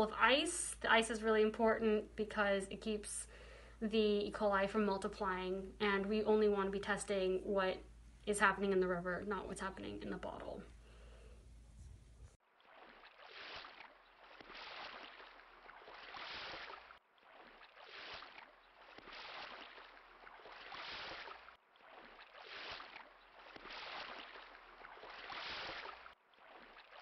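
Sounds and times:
small waves lapping: 12.4 - 27.0.

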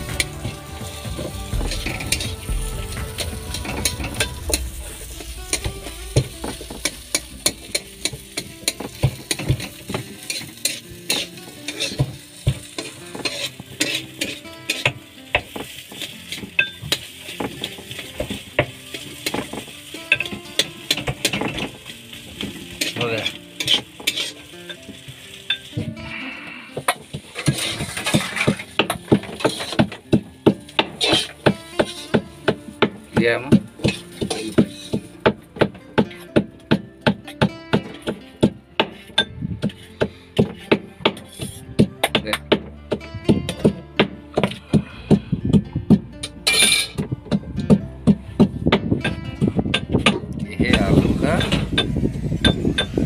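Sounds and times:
spatula scraping pan: 0.0 - 15.0, 22.6 - 24.5, 27.1 - 30.1, 30.7 - 32.5, 33.8 - 35.2, 38.8 - 41.7
oil sizzling: 0.0 - 49.9
low rumble: 1.0 - 9.3.

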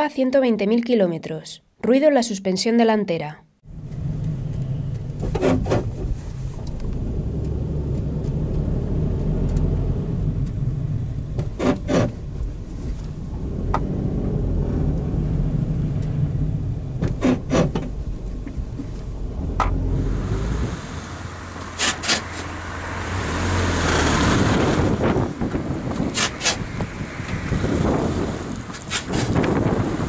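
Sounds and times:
car rolling rumble: 3.6 - 30.0
suspension making sharp noises: 3.7 - 30.0.

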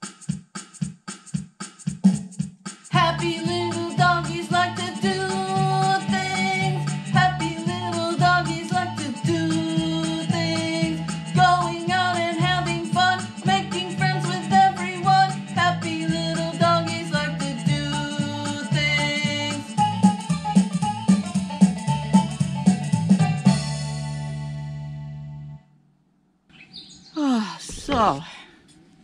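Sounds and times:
song with singing: 2.9 - 19.8.

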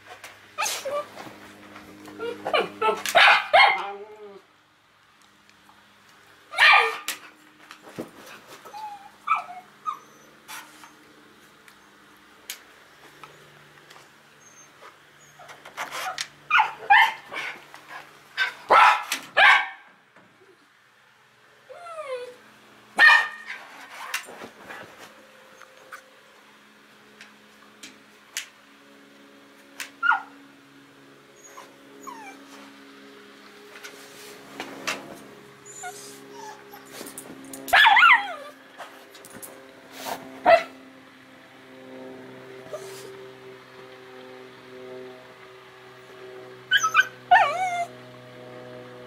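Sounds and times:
dog whining and yipping: 0.6 - 1.2, 2.2 - 4.4, 8.6 - 10.4, 14.4 - 17.2, 21.7 - 22.4, 30.0 - 30.3, 31.4 - 32.5, 35.6 - 37.1, 37.7 - 38.6, 46.7 - 47.9
dog barking and yipping: 2.2 - 4.0, 6.5 - 7.2, 8.8 - 10.0, 15.3 - 17.6, 18.4 - 19.8, 23.0 - 24.1, 30.0 - 30.3, 37.7 - 38.6, 40.4 - 40.7, 46.7 - 47.9.

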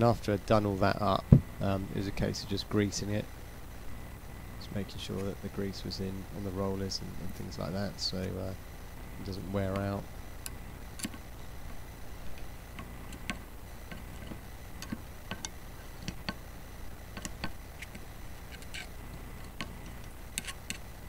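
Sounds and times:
low steady hum: 0.0 - 21.0
tool clicking and tapping on metal: 9.7 - 11.2, 12.3 - 16.4, 17.1 - 20.8.

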